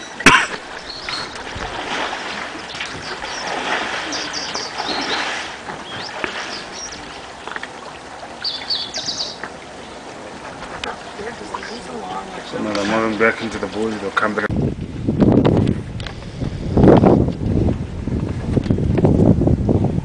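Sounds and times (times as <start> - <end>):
short high bird chirps: 8.4 - 9.4.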